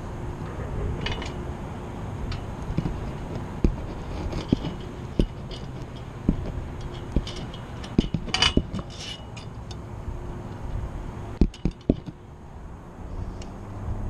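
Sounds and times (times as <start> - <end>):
steady low rumble: 0.0 - 14.0
metal hardware clinking: 1.0 - 1.5, 2.3 - 9.8, 11.4 - 12.2.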